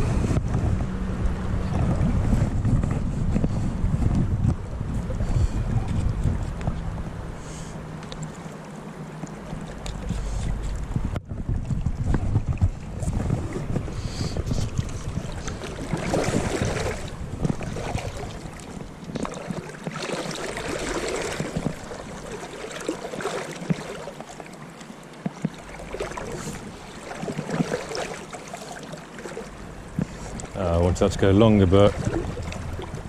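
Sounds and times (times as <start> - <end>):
wind buffeting microphone: 0.0 - 8.0, 9.4 - 22.6, 29.5 - 33.0
river water rushing around legs: 11.8 - 33.0.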